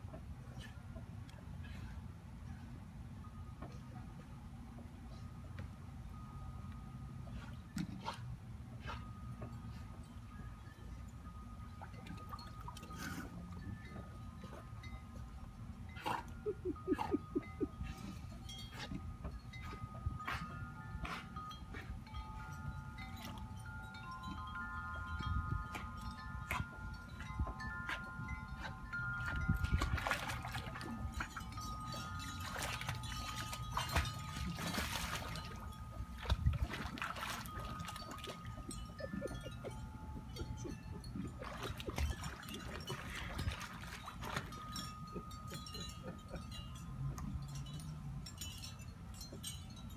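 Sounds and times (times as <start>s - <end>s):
wind chimes ringing: 9.1s - 36.5s, 37.3s - 49.9s
dog paddling water splashes: 25.8s - 38.8s, 40.9s - 45.3s.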